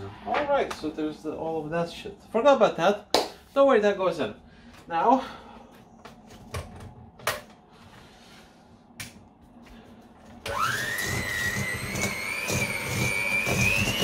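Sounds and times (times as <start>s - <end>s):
electric hand mixer whine: 10.4s - 14.0s.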